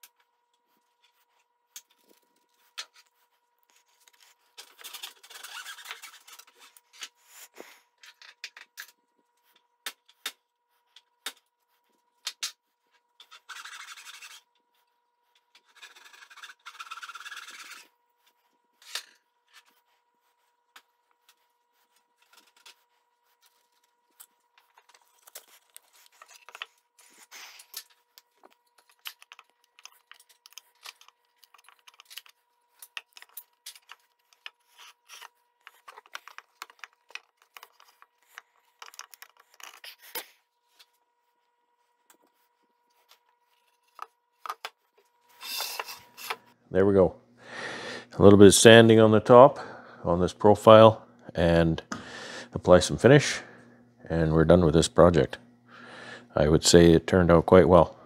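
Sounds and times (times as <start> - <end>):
rasping rubbing: 13.2 - 14.5, 15.6 - 17.9.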